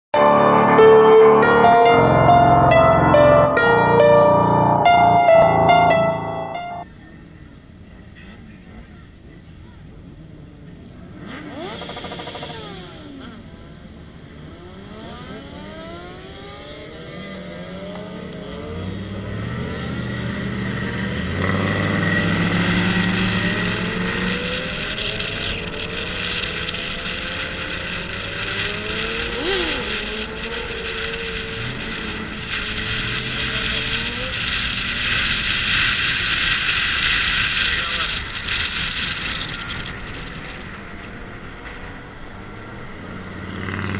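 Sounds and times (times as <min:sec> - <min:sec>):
road and wind noise: 0:00.1 - 0:43.9
car engine accelerating: 0:08.2 - 0:43.9.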